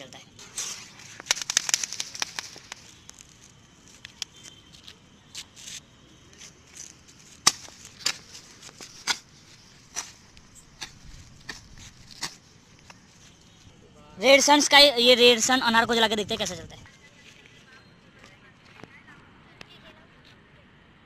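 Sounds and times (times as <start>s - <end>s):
firecrackers popping: 0.4s - 4.6s.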